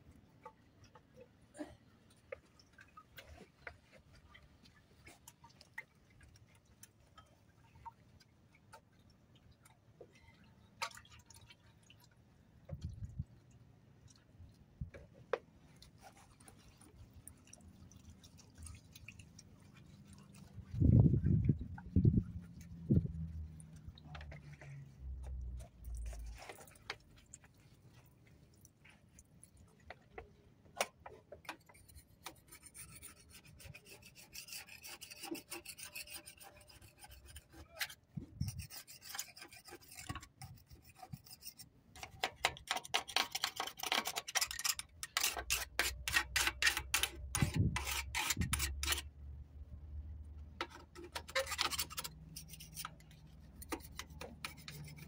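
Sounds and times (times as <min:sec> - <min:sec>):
hand scraping engine parts: 0:42.0 - 0:49.1, 0:50.4 - 0:55.0.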